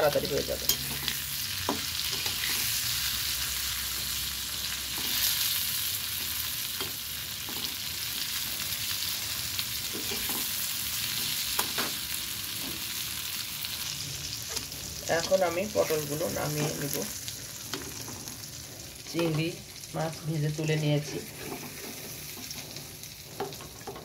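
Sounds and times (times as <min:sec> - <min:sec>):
vegetables frying in oil: 0:00.0 - 0:24.0
metal spatula scraping pan: 0:00.6 - 0:02.9, 0:09.8 - 0:12.0, 0:20.6 - 0:24.0.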